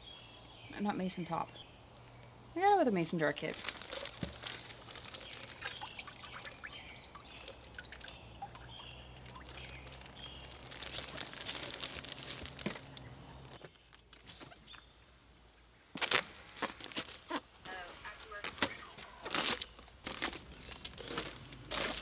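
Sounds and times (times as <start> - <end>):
plastic bag crinkling: 3.4 - 13.1, 19.2 - 22.0.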